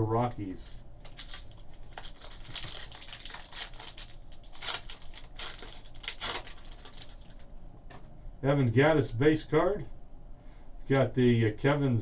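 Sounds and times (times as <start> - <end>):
wrapper tearing and crinkling: 0.6 - 7.5.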